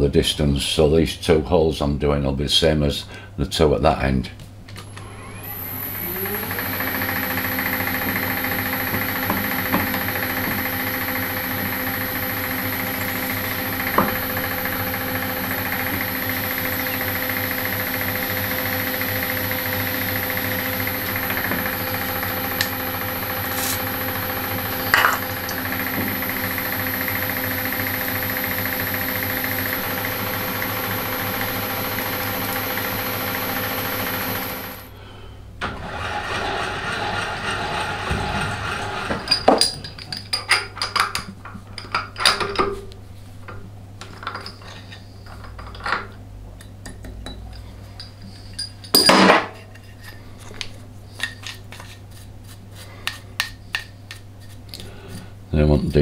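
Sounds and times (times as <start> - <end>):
milling machine drilling metal: 4.9 - 34.9, 35.8 - 39.7.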